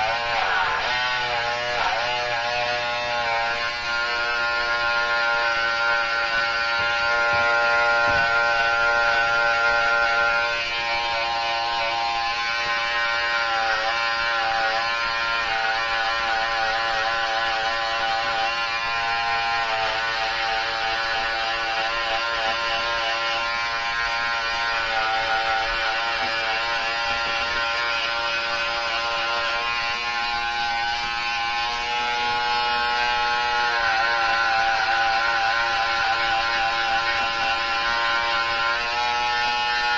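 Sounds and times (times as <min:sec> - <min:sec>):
electric hair trimmer buzzing: 0:00.0 - 0:39.9.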